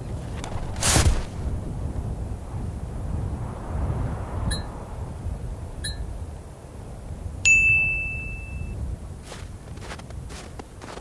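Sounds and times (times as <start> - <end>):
bright bell ding: 7.5 - 8.8
footsteps: 9.2 - 11.0.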